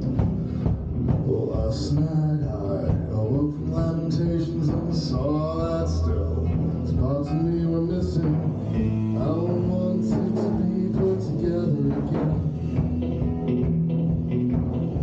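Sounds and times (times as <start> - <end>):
bass line: 0.0 - 15.0
drum beat: 0.0 - 15.0
electric guitar: 0.0 - 15.0
man singing: 1.1 - 12.6.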